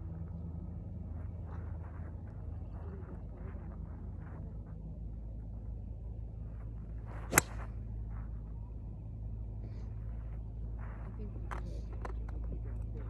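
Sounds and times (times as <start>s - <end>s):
golf club swish: 7.1s - 7.8s
club striking golf ball: 7.3s - 7.8s.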